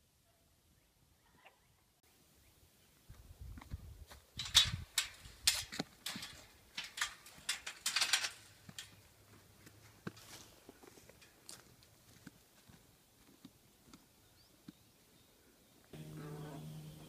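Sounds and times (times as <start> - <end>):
footsteps crunching on dry ground: 8.4 - 14.8.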